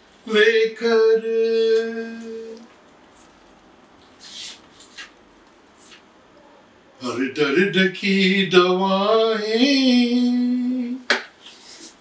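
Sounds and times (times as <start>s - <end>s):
man singing unaccompanied: 0.2s - 2.7s, 7.0s - 11.1s.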